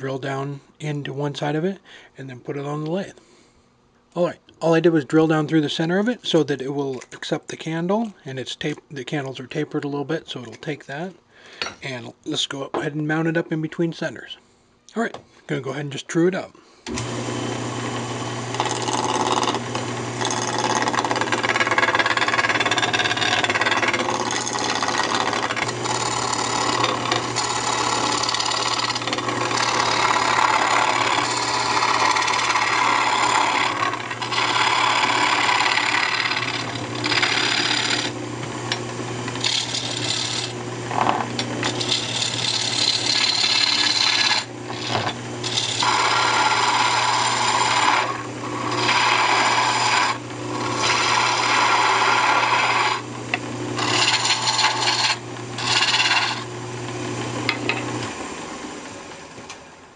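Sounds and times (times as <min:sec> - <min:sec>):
turning tool cutting wood: 0:16.9 - 0:59.6
wood lathe humming: 0:16.9 - 0:59.7.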